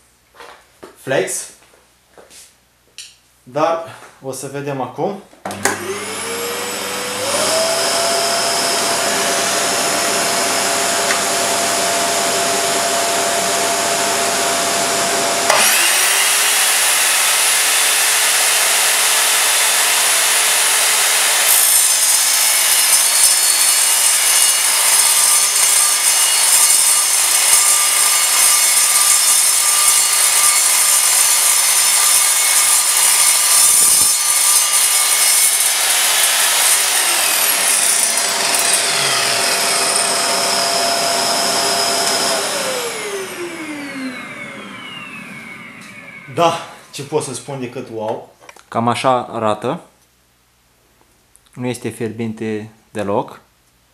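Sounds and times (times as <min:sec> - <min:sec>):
saw motor whining: 0:05.6 - 0:47.1
saw blade cutting steel: 0:15.4 - 0:44.2.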